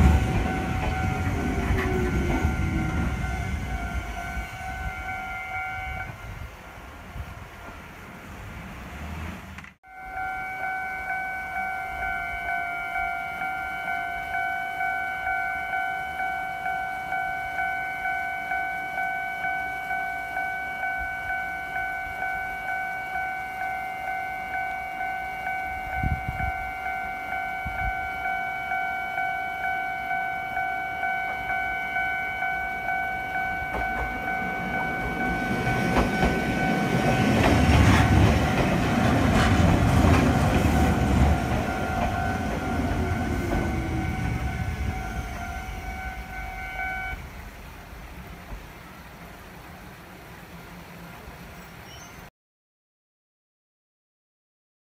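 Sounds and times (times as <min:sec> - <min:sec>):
level crossing alarm dings: 0:00.0 - 0:06.1, 0:09.8 - 0:47.2
train rumble and wheel rattle: 0:00.0 - 0:52.2.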